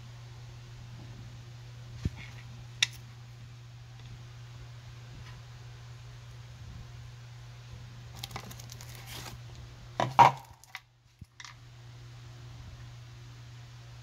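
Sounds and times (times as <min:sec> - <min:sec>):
microphone handling rustle: 0:01.9 - 0:02.6.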